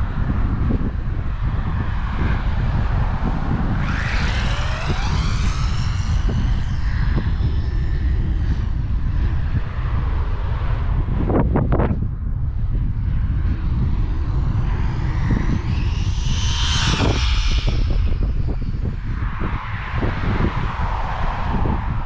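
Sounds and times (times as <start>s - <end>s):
wind buffeting microphone: 0.0s - 22.0s
electric motor whine: 2.5s - 9.5s, 13.0s - 19.0s.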